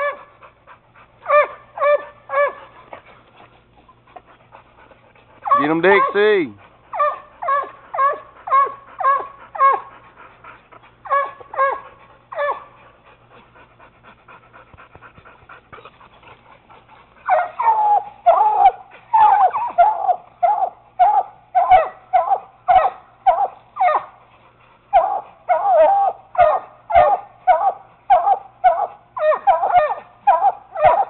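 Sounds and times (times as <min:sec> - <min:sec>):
puppy barking: 0:01.2 - 0:02.7, 0:05.4 - 0:06.4, 0:17.3 - 0:24.1, 0:25.0 - 0:31.0.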